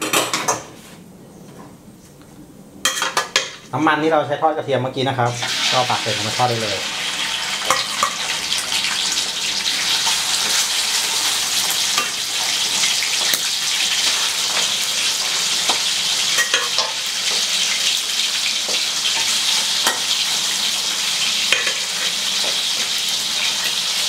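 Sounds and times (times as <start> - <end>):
deep-frying sizzle with pops: 5.3 - 24.0.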